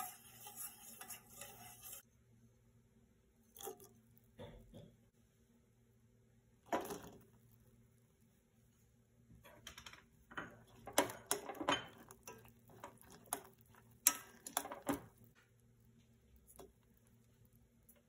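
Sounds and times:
spatula stirring in saucepan: 0.0 - 2.2, 10.2 - 18.0.

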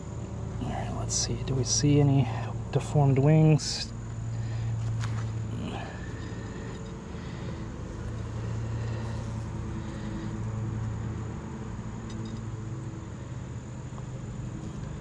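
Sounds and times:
honeybees buzzing: 3.9 - 15.0.

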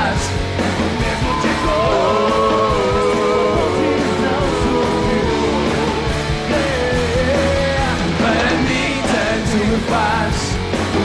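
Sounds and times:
live rock band: 0.0 - 11.0
men singing: 0.0 - 11.0.

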